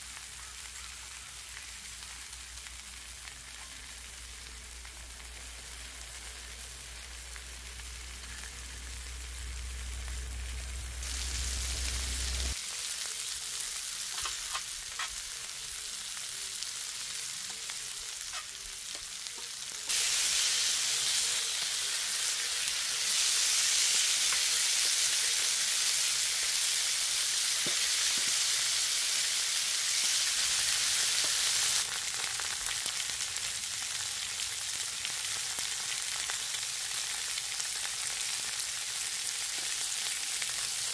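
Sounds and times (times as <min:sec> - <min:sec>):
meat sizzling on griddle: 0:00.0 - 0:40.9
low hum: 0:07.8 - 0:12.5.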